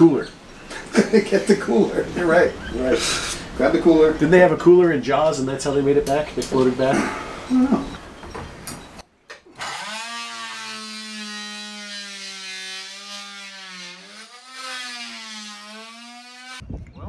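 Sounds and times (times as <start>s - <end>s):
oscillating multi-tool whining: 9.6s - 16.6s.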